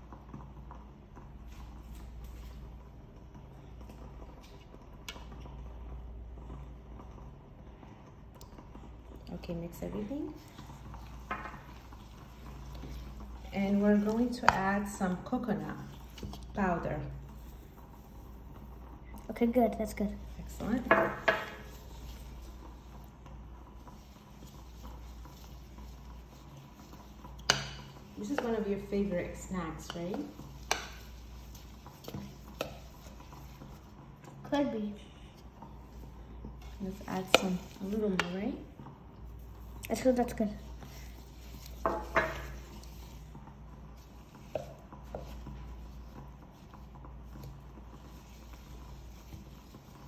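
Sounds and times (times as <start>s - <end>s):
metal spoon stirring in plastic bowl: 23.8s - 33.9s, 36.6s - 38.6s, 43.9s - 49.9s.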